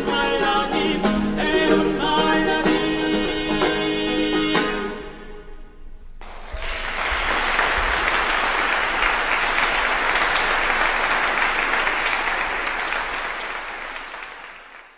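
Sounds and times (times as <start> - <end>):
audience applauding: 6.2 - 14.9.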